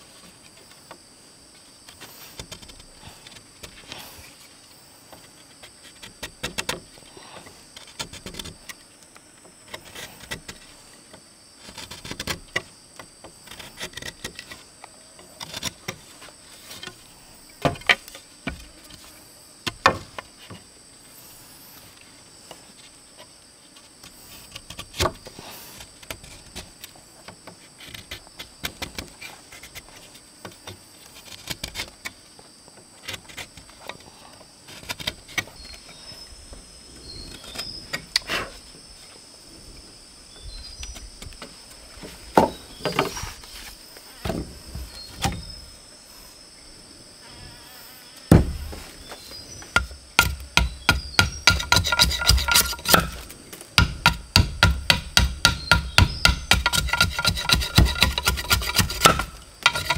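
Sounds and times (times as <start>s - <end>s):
high-pitched insect drone: 35.6s - 59.9s.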